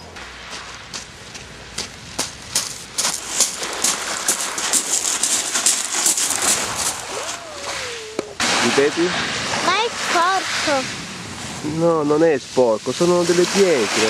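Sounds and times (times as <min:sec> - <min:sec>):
footsteps crunching on pebbles: 0:00.2 - 0:07.2.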